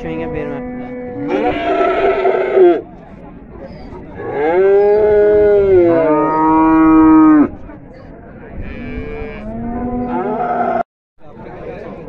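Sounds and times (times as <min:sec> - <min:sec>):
cattle mooing: 0:00.3 - 0:02.8, 0:08.7 - 0:10.8.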